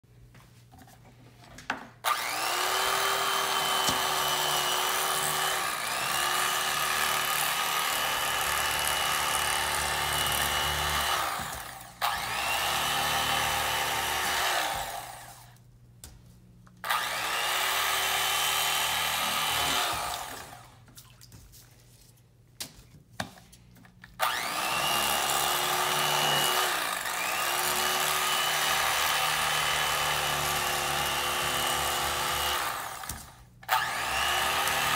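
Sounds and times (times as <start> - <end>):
electric knife motor whining: 2.0 - 15.6, 16.8 - 20.8, 24.2 - 34.9.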